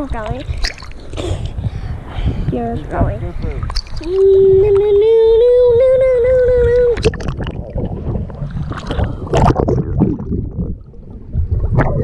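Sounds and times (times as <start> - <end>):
water splashing and sloshing: 0.0 - 12.0
child singing a long note: 4.1 - 7.0.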